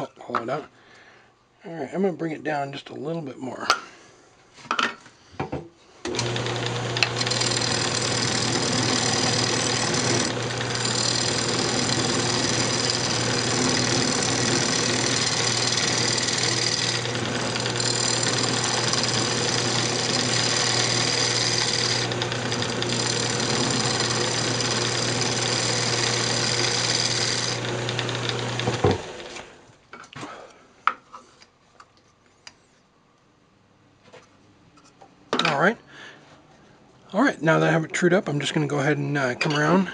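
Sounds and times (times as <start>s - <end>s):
gouge cutting spinning wood: 6.1s - 29.5s
wood lathe motor hum: 6.1s - 29.6s.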